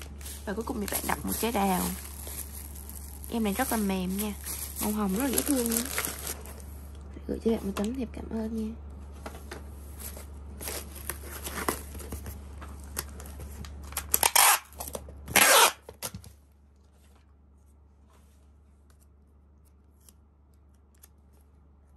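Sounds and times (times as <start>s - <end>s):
cardboard and plastic handling: 0.0s - 6.7s, 9.2s - 16.4s
packing tape pulled off dispenser: 13.8s - 16.1s.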